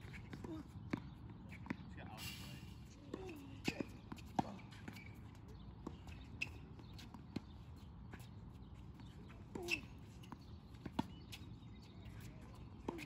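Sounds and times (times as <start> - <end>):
tennis ball hit and bouncing: 3.1 - 5.0, 9.0 - 11.3.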